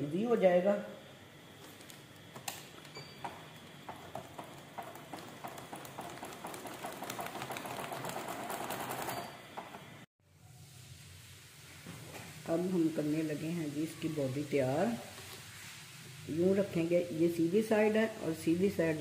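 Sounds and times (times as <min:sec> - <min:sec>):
sewing machine stitching: 0:03.9 - 0:09.8.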